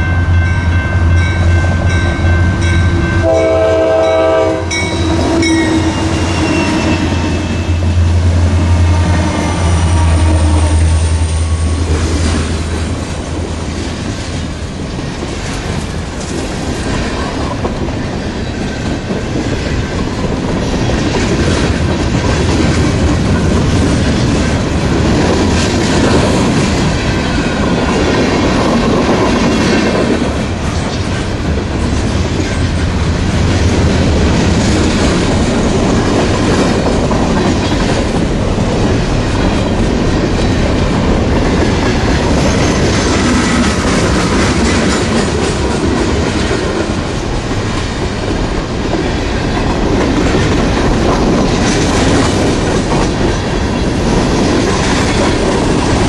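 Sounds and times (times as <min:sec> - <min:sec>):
train wheels rumbling on rails: 0:00.0 - 0:56.0
clickety-clack over rail joints: 0:11.6 - 0:56.0.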